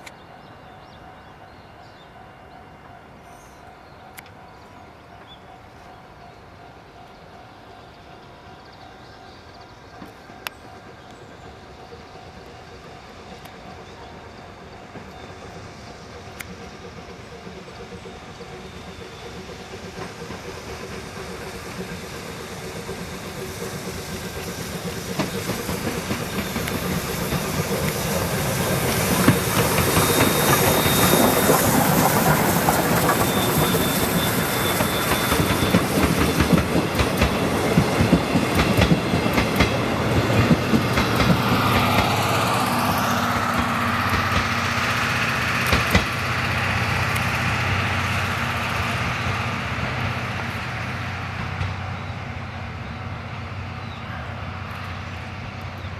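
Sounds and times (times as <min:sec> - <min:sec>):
steam train passing: 0:00.0 - 0:55.9
wheels clicking over rail joints: 0:09.6 - 0:48.4.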